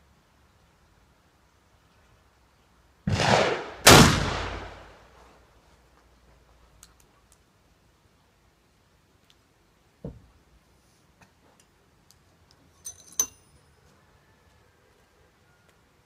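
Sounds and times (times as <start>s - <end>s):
pistol first blast: 3.1s - 4.9s.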